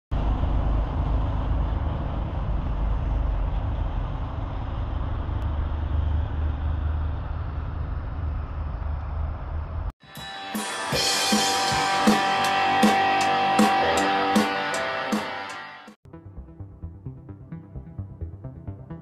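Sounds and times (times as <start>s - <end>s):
street ambience rumble and hiss: 0.1s - 9.9s.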